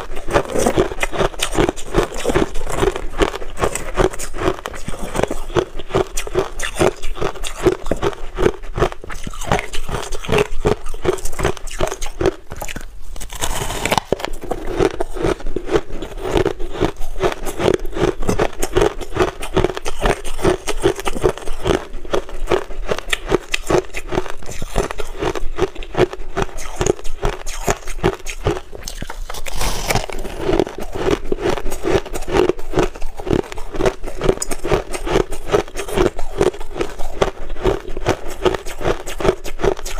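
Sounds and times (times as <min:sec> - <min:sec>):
crushed ice crunching: 0:13.2 - 0:21.8, 0:28.5 - 0:37.0.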